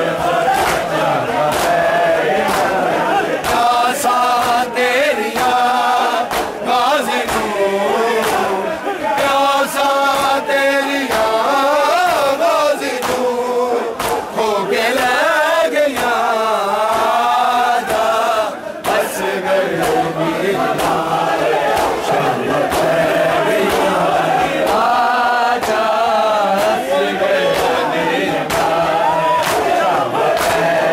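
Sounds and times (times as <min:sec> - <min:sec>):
men chanting in unison: 0:00.0 - 0:30.9.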